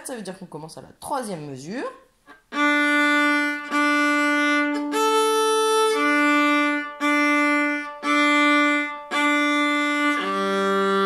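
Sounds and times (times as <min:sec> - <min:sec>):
violin open strings bowed: 0:02.3 - 0:11.0.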